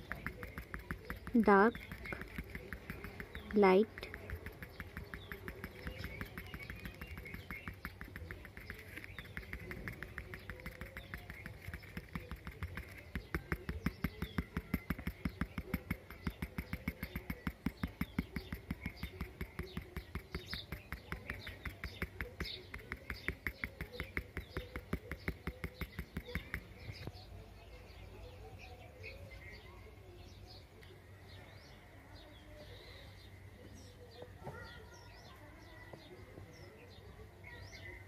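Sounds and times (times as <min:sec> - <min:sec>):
pencil tapping on paper: 0:00.0 - 0:27.2.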